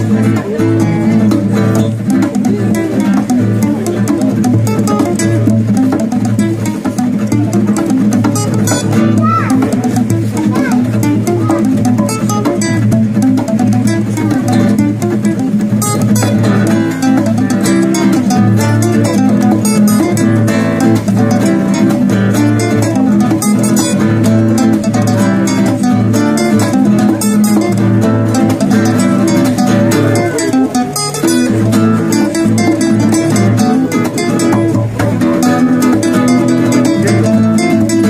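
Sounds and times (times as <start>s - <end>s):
acoustic guitars playing: 0.0s - 38.0s.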